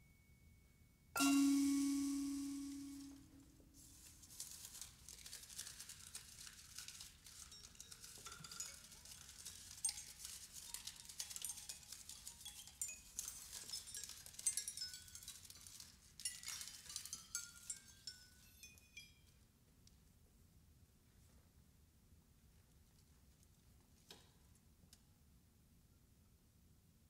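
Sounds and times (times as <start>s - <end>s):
prepared vibraphone metallic taps: 1.2s - 3.3s.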